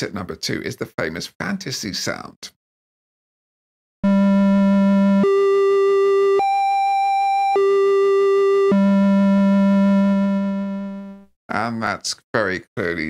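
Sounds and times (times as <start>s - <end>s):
square-wave synth notes: 4.0s - 11.2s.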